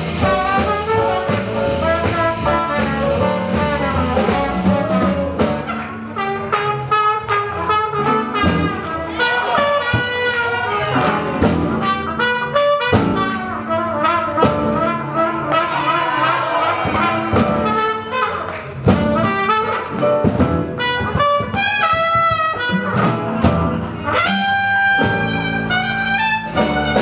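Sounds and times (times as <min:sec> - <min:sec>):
drum beat: 0:00.0 - 0:05.8, 0:08.1 - 0:10.3, 0:11.0 - 0:13.6, 0:16.4 - 0:23.8, 0:24.9 - 0:27.0
brass horns: 0:00.0 - 0:27.0
piano: 0:00.0 - 0:27.0.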